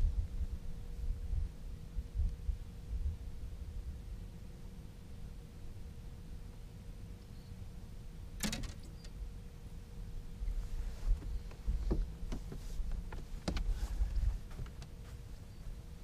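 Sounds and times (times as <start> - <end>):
wind rumble on microphone: 0.0 - 5.8, 10.2 - 16.0
knocks and clatters on boat: 11.1 - 13.8.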